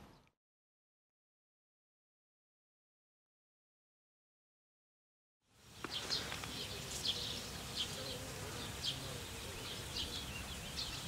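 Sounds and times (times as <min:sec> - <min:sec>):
faint insect buzz: 0:05.5 - 0:11.0
small birds chirping: 0:05.5 - 0:11.0.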